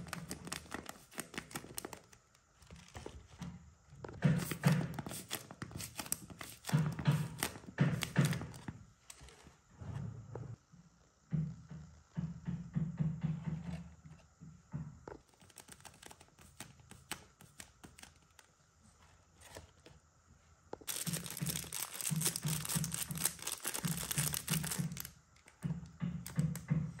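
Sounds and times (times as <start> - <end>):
paper and plastic crinkling: 0.0 - 3.4, 4.2 - 9.4, 15.3 - 18.5, 20.8 - 25.6.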